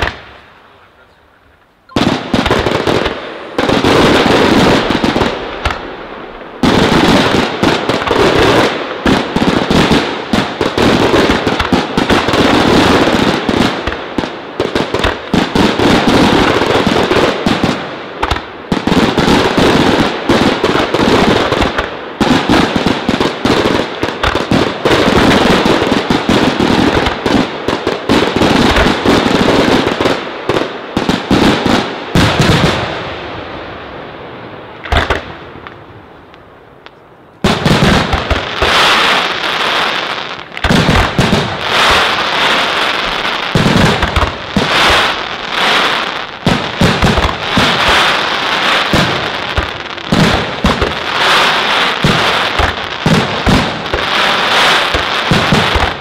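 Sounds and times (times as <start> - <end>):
fireworks bursting and crackling: 0.0 - 56.0.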